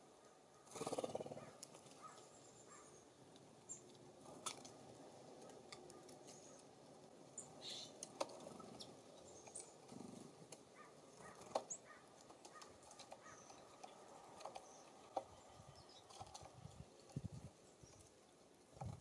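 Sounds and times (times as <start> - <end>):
birds chipping: 0.0 - 19.0.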